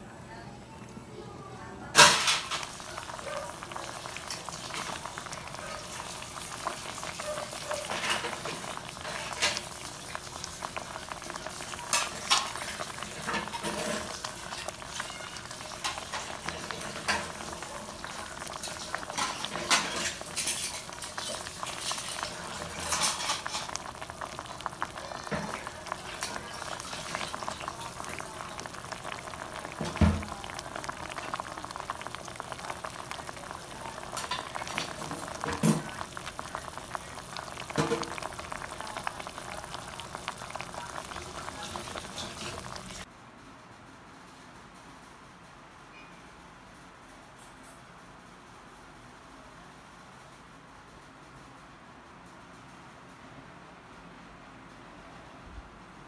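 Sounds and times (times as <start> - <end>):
pot boiling with bubbling hiss: 0.0 - 43.1.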